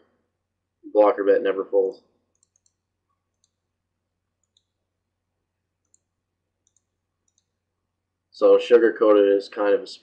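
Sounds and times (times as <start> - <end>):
faint sharp high clicks: 2.3 - 3.6.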